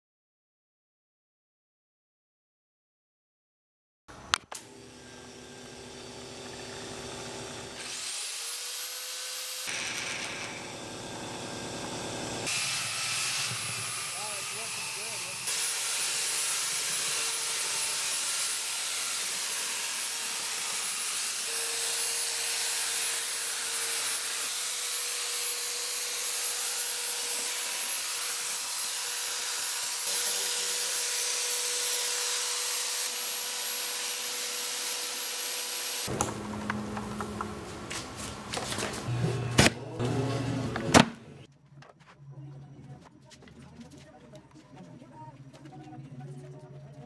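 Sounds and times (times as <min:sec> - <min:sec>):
electric paddle mixer whirring: 0:04.6 - 0:37.7.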